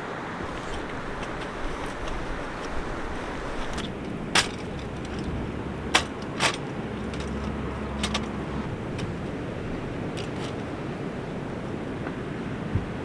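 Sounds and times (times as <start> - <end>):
steady background noise: 0.0 - 13.0
metal step stool clacks: 3.6 - 8.4.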